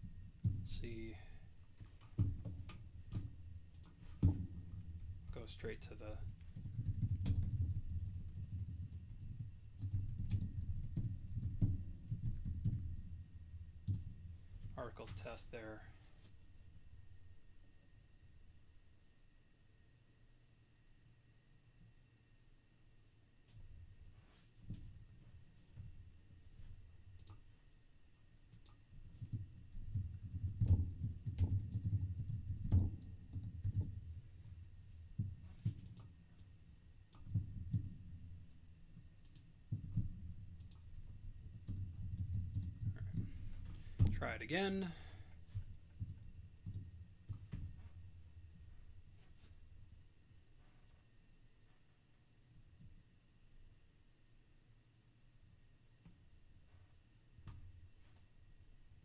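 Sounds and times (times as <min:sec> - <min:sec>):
typing on a keyboard: 0:06.1 - 0:13.0, 0:27.2 - 0:27.4, 0:28.5 - 0:34.0, 0:35.2 - 0:36.5, 0:37.1 - 0:37.9, 0:39.2 - 0:43.4, 0:45.5 - 0:47.4.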